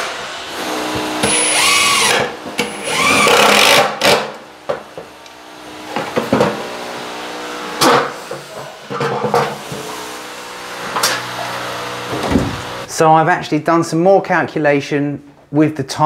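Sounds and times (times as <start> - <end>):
cordless drill driving screws: 0.7 - 4.2
loud thump: 12.1 - 12.7.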